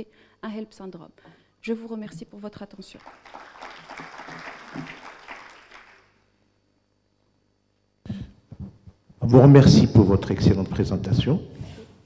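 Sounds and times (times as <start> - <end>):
audience applauding: 3.0 - 6.1.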